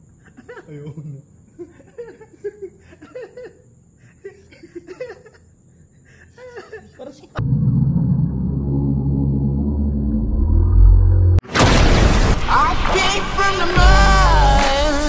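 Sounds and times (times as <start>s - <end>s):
insects chirring: 0.0s - 7.4s
men laughing: 0.3s - 5.5s
deep musical boom: 7.4s - 12.9s.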